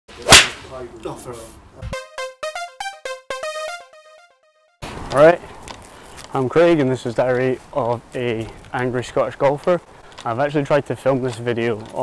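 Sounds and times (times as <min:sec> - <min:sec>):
bright musical jingle: 0:01.9 - 0:04.8.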